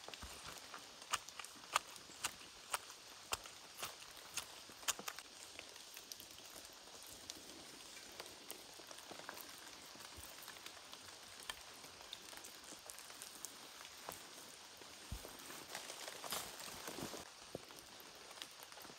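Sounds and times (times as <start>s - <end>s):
wet sticky crackles: 0.0s - 18.9s.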